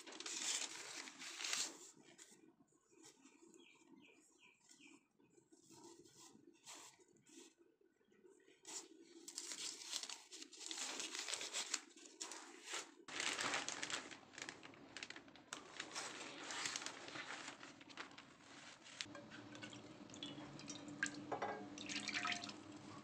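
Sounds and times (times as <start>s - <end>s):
plastic sheet crinkling: 0.0s - 2.0s, 8.7s - 19.1s.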